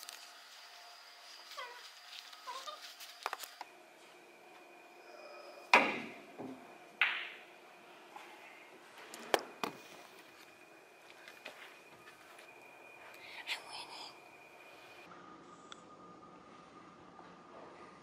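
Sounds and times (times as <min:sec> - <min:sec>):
billiard balls clacking: 0:05.8 - 0:07.4.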